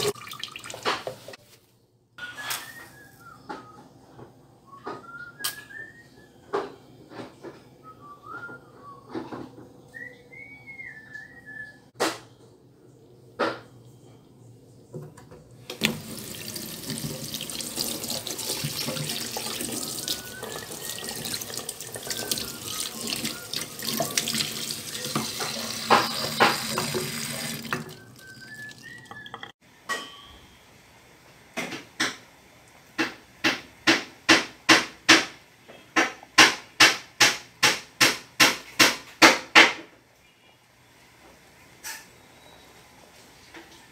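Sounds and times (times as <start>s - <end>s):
tap water running into sink: 0.0s - 1.4s, 15.7s - 29.5s.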